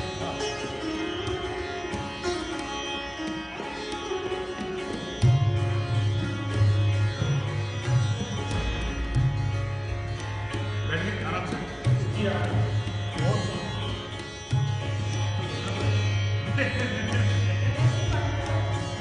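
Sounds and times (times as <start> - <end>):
sitar melody with sliding notes: 0.0 - 19.0
tabla strokes: 0.0 - 19.0.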